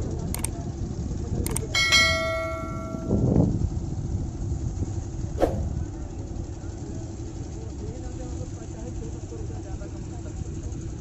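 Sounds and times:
low background rumble: 0.0s - 11.0s
bright bell chime: 1.8s - 3.3s.

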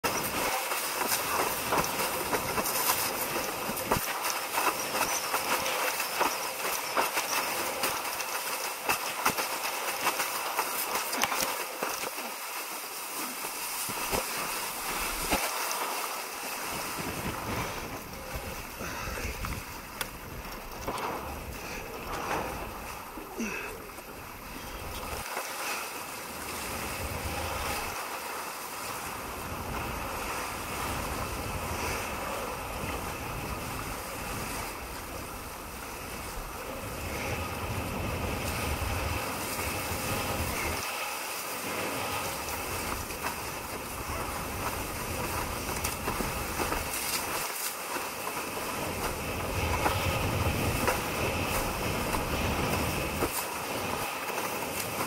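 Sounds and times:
water rushing and splashing: 0.0s - 55.0s
wind buffeting microphone: 16.7s - 23.2s, 48.5s - 55.0s.

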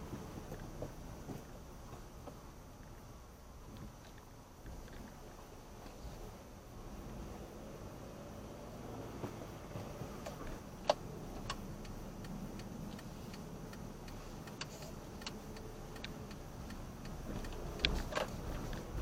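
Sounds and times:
road and engine noise: 0.0s - 19.0s
turn signal ticking: 7.4s - 19.0s.

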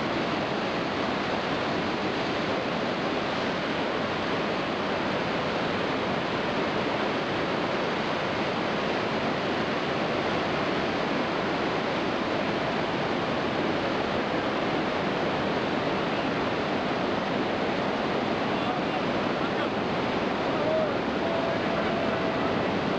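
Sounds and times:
waterfall roaring: 0.0s - 22.9s.

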